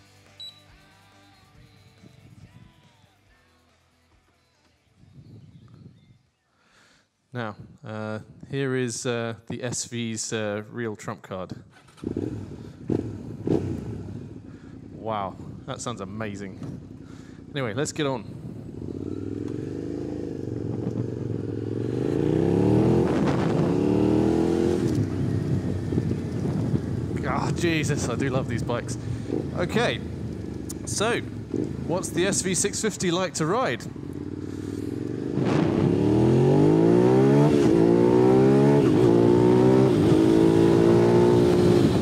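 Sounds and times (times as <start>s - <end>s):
motorcycle engine accelerating: 11.7s - 42.0s.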